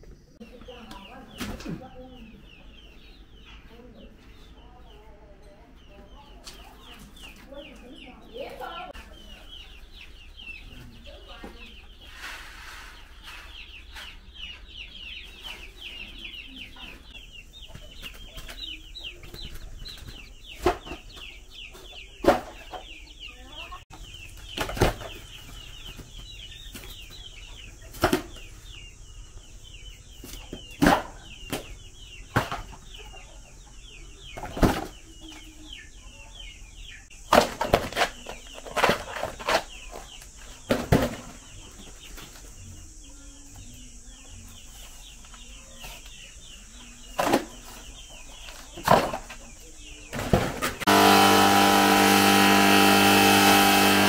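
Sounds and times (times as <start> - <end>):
chickens chirping: 0.0 - 54.0
motor running: 50.8 - 54.0.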